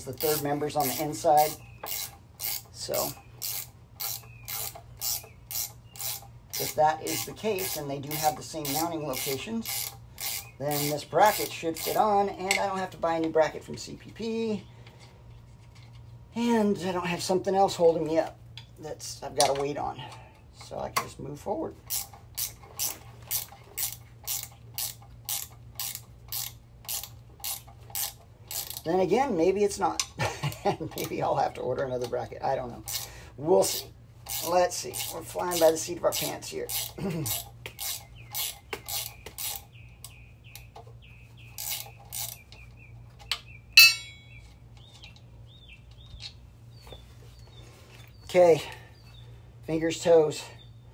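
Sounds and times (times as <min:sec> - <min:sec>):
low steady hum: 0:00.0 - 0:50.9
ratchet wrench clicking: 0:00.1 - 0:12.7, 0:21.9 - 0:28.9, 0:32.8 - 0:39.7, 0:41.6 - 0:42.4.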